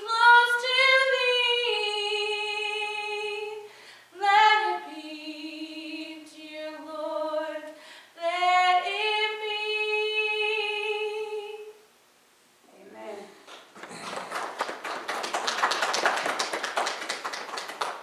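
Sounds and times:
woman singing a hymn: 0:00.0 - 0:11.8
singer breathing: 0:03.6 - 0:04.2, 0:07.7 - 0:08.2.

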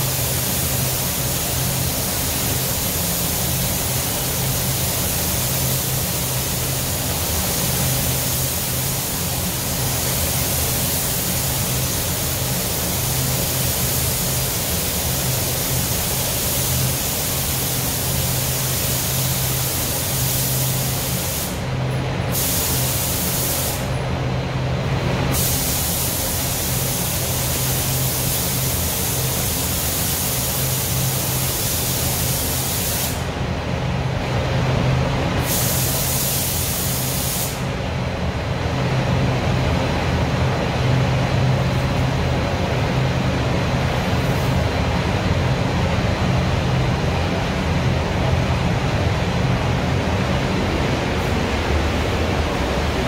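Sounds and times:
spray gun hissing: 0:00.0 - 0:21.7, 0:22.3 - 0:23.9, 0:25.3 - 0:33.3, 0:35.4 - 0:37.8
ventilation rush with low hum: 0:00.0 - 0:53.0.

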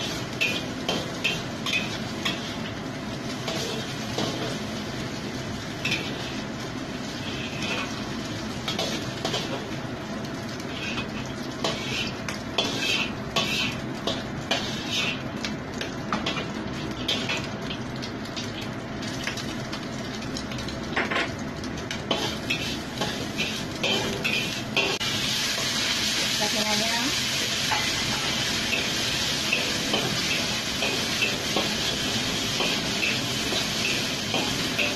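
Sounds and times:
egg sizzling in oil: 0:00.0 - 0:34.9
metal spatula scraping a wok: 0:07.2 - 0:08.0, 0:10.6 - 0:15.3, 0:22.2 - 0:25.0.

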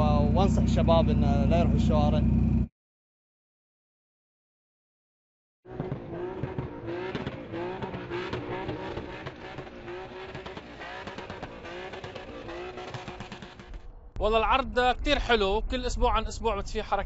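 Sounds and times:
car engine revving hard: 0:05.7 - 0:13.7.

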